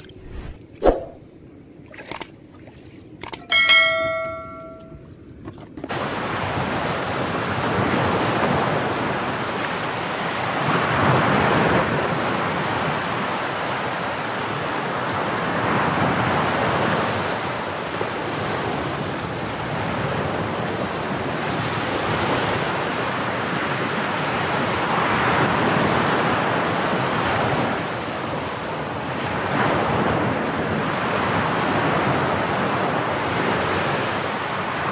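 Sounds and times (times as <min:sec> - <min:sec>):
clicks: 0:03.2 - 0:05.0
short ringing tone: 0:03.2 - 0:05.0.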